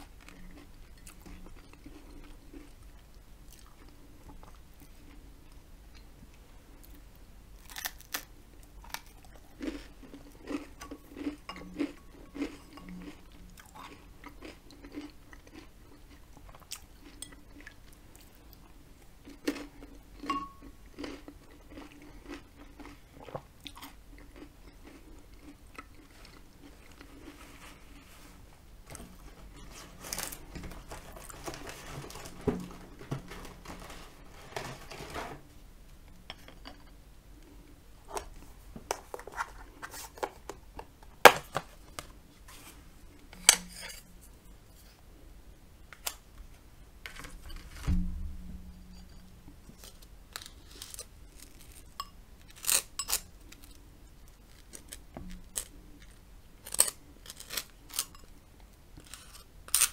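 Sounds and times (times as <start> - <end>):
soft chewing: 0.0 - 32.2
dull thump: 47.8 - 48.8.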